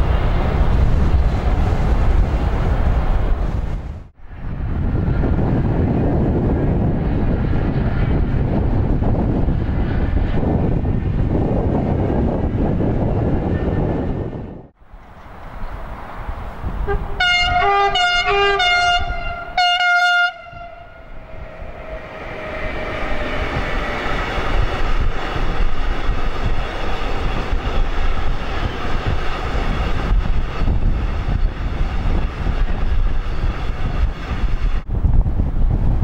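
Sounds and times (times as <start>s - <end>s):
freight train wagons rumbling: 0.0s - 36.0s
train horn blasts: 16.8s - 22.1s.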